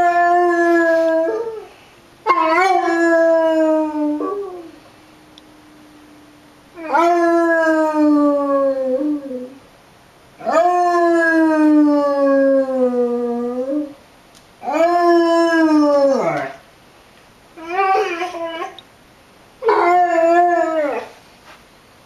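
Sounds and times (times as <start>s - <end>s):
dog howling: 0.0s - 4.8s, 6.8s - 9.6s, 10.4s - 14.0s, 14.6s - 16.6s, 17.6s - 18.8s, 19.6s - 21.2s.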